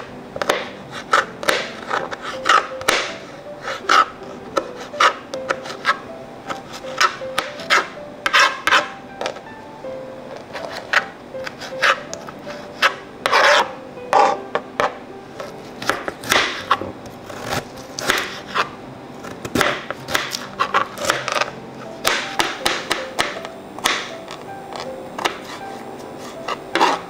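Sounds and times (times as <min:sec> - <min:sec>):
knife cutting vegetables: 0:00.4 - 0:09.4, 0:10.3 - 0:27.0.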